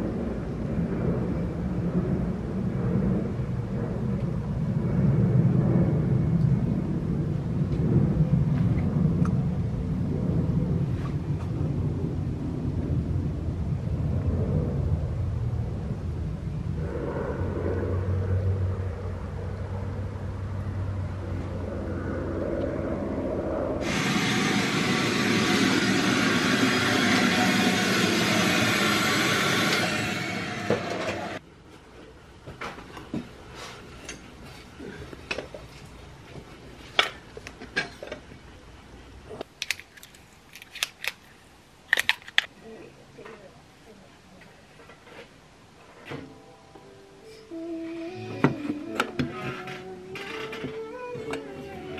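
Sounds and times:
machinery humming: 0:23.0 - 0:31.4
loud rushing hiss: 0:23.8 - 0:31.4.

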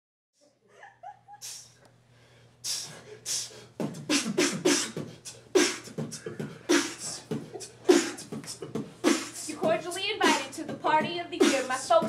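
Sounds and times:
beatboxing hissing snare: 0:01.4 - 0:01.8, 0:02.6 - 0:12.0
beatboxing bass kicks: 0:02.6 - 0:12.0.

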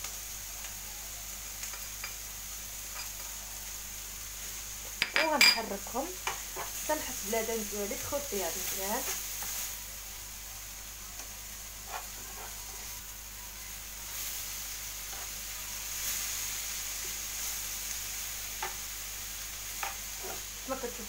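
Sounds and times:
food sizzling in frying pan: 0:00.0 - 0:21.0
utensil scraping pan: 0:11.8 - 0:12.9, 0:19.8 - 0:20.5.

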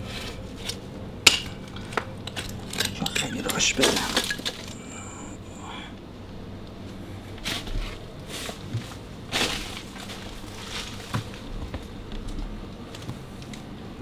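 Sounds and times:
footsteps crunching and scuffing: 0:06.8 - 0:13.3.

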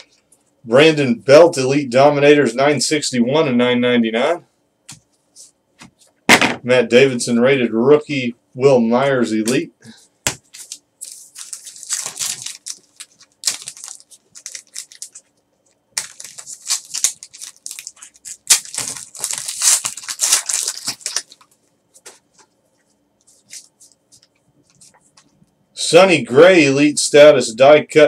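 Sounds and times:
foil wrappers tearing and crinkling: 0:10.5 - 0:15.3, 0:16.0 - 0:21.6.

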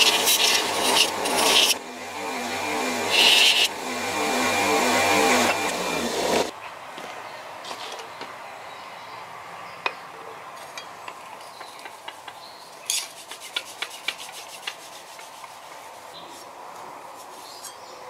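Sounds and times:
cloth scrubbing steel blade: 0:00.0 - 0:01.8, 0:03.0 - 0:03.8.

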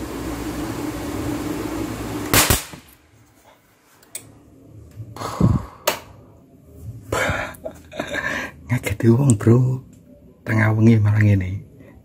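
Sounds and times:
fan hum: 0:00.0 - 0:10.1
loud sharp electrical bang: 0:02.3 - 0:03.0
small sharp crack: 0:02.4 - 0:03.0.

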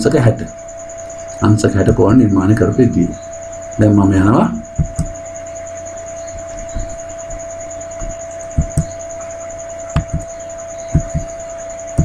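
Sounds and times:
electrical whine and hiss: 0:00.0 - 0:12.0
soft low thumps: 0:04.6 - 0:05.2, 0:06.2 - 0:09.1, 0:09.9 - 0:12.0.

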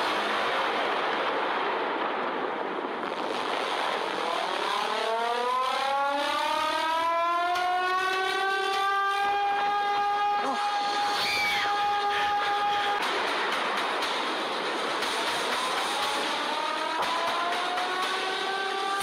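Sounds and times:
warning siren winding up: 0:05.0 - 0:13.0
rockslide rumble: 0:10.4 - 0:19.0.

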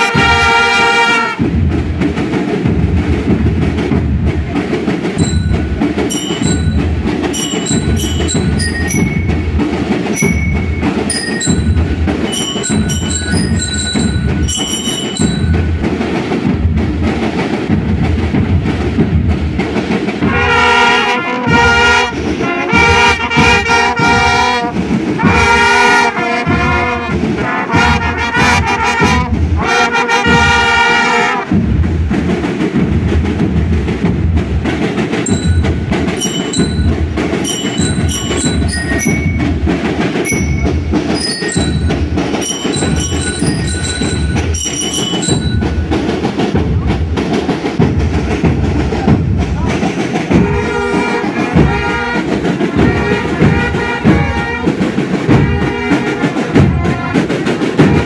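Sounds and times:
brass section playing: 0:00.0 - 0:01.4, 0:20.2 - 0:31.5, 0:50.3 - 0:58.0
marching drums: 0:00.0 - 0:58.0
high ringing notes: 0:05.2 - 0:16.0, 0:35.3 - 0:46.2.

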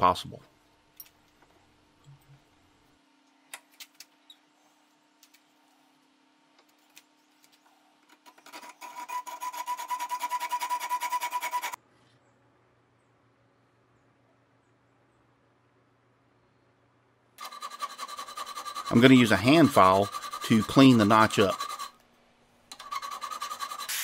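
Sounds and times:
hacksaw rasping on metal: 0:08.6 - 0:11.8, 0:17.4 - 0:22.0, 0:22.8 - 0:24.0.

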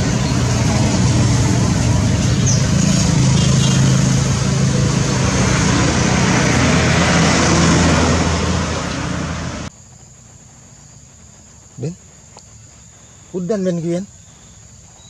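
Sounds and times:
vehicle engine running loudly: 0:00.0 - 0:09.7.

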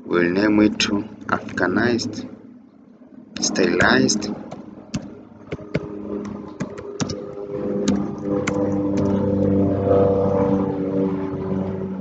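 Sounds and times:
airplane engine drone: 0:00.0 - 0:12.0
computer keyboard clicks: 0:04.5 - 0:09.2.

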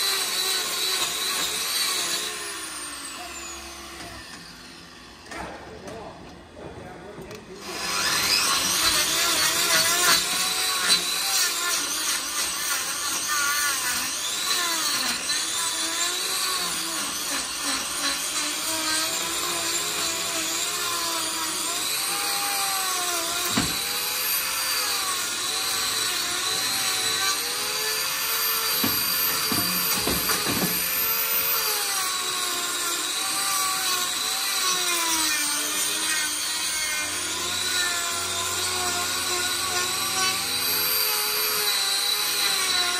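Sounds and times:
angle grinder cutting hoof: 0:00.0 - 0:06.1, 0:07.4 - 0:42.9
sharp knocks: 0:28.7 - 0:30.9.

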